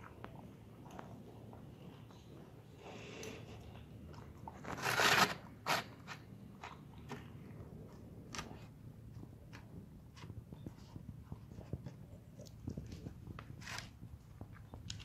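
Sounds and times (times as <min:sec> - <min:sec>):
dog chewing and crunching: 0:00.0 - 0:15.0.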